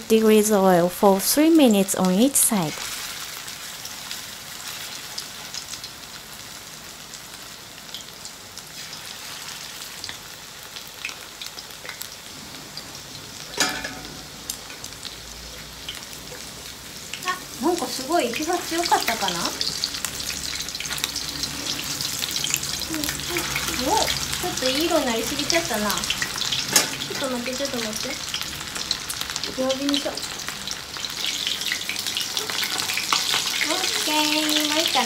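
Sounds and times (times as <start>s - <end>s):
chicken frying in oil: 0.0s - 35.0s.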